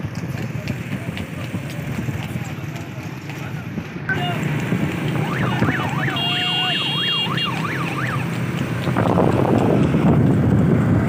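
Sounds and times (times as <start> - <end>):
vehicle rumble: 0.0 - 11.0
siren sweeping up and down: 5.1 - 8.3.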